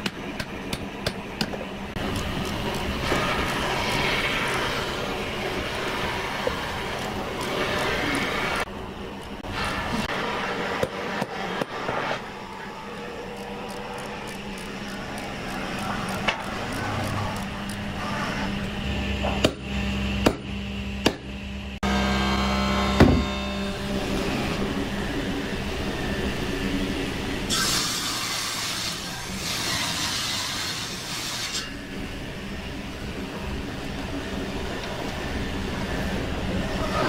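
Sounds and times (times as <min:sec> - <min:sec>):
machine humming low: 0:00.2 - 0:27.5.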